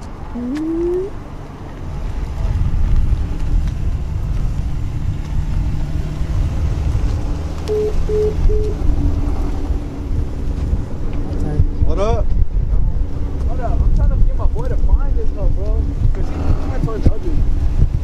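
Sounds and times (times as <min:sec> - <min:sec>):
car engine and exhaust revving: 0:00.0 - 0:18.0
short beeps: 0:07.7 - 0:08.8.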